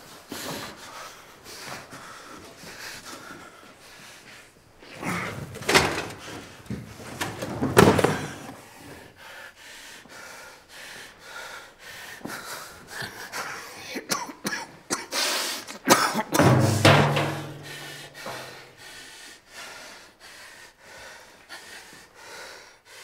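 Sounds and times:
wheezing breaths: 0:00.1 - 0:06.8, 0:08.1 - 0:14.1, 0:15.0 - 0:15.9, 0:17.6 - 0:23.0
man coughing harshly: 0:14.0 - 0:15.1, 0:15.9 - 0:16.6.

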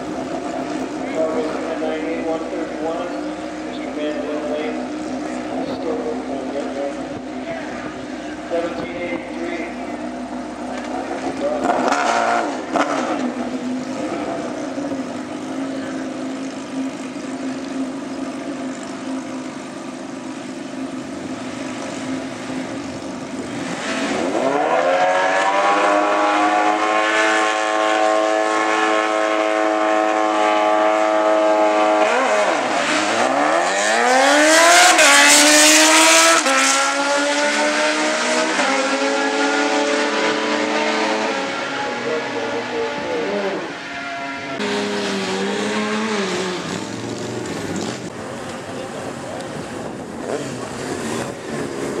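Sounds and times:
motorcycles revving and accelerating: 0:00.0 - 0:52.0.

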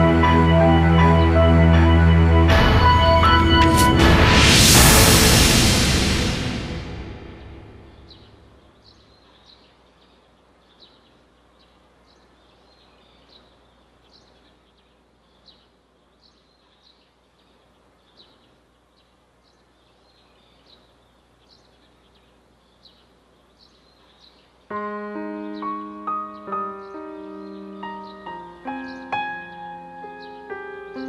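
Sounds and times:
music: 0:00.0 - 0:08.5, 0:24.7 - 0:31.0
faint bird chirping: 0:07.9 - 0:31.0.

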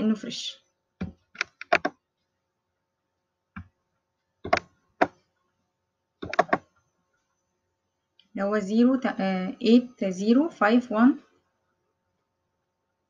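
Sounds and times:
computer mouse clicking: 0:01.0 - 0:02.3, 0:04.4 - 0:05.3, 0:06.2 - 0:06.8.

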